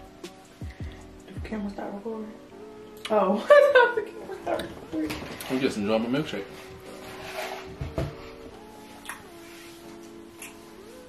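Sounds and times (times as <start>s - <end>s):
soft background music chords: 0.0s - 11.0s
dull thumps: 7.7s - 8.4s.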